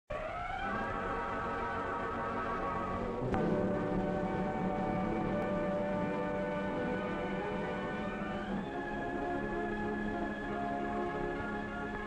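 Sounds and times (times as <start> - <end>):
orchestral chord held: 3.2 - 8.5.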